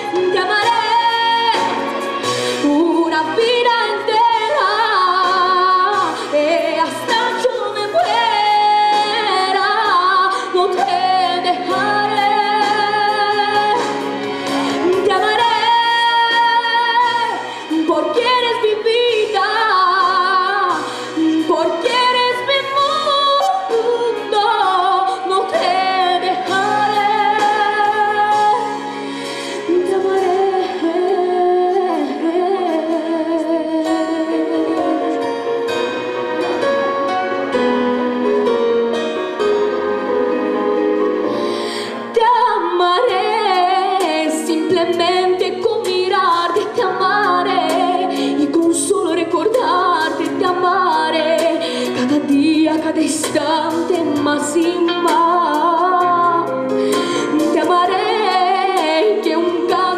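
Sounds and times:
instrumental accompaniment: 0.0s - 59.9s
boy singing with vibrato: 57.2s - 59.9s.

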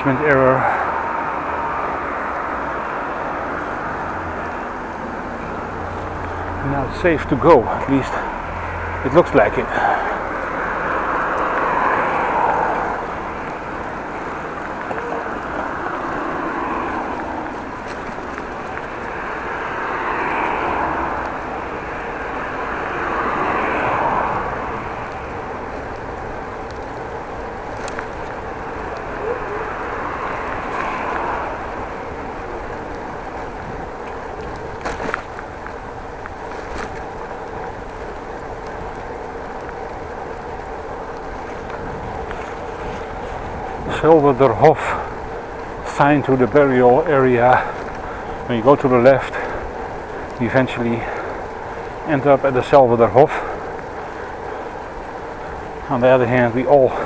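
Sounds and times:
bicycle tyres on asphalt: 0.0s - 57.0s
road traffic rushing: 0.0s - 57.0s
wind noise on microphone: 20.2s - 44.4s.

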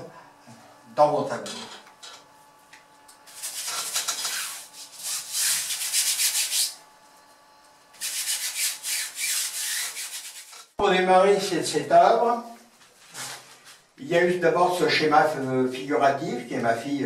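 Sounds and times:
paint scrubbing on canvas: 3.3s - 6.8s, 8.0s - 10.7s.

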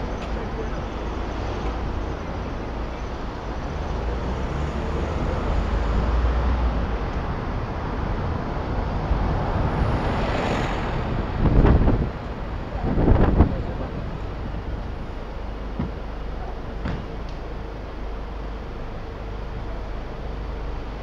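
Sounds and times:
traffic and road noise: 0.0s - 21.0s
wind rumble on microphone: 1.8s - 17.2s.

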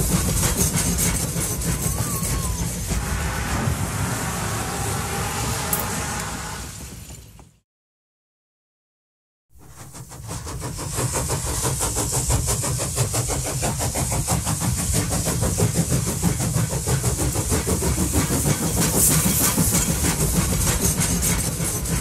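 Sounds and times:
steam train chuffing: 0.0s - 7.6s, 9.6s - 22.0s
steady steam hiss: 9.6s - 22.0s.

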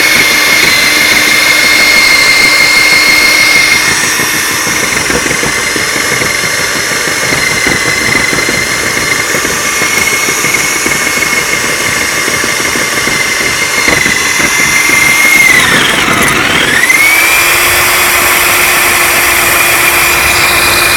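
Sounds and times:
diamond bit grinding brick: 0.0s - 20.9s
drill motor high whine: 0.0s - 20.9s.

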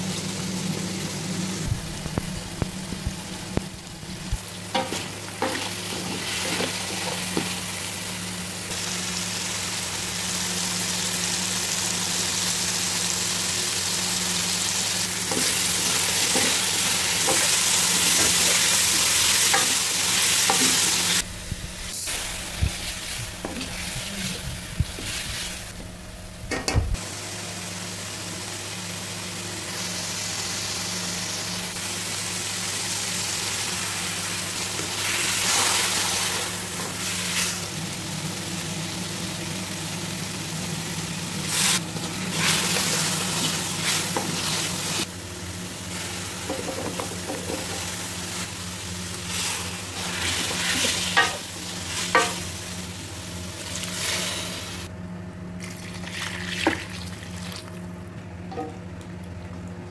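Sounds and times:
steady low hum: 0.0s - 10.6s, 14.0s - 32.5s
food sizzling in oil: 0.0s - 54.9s.

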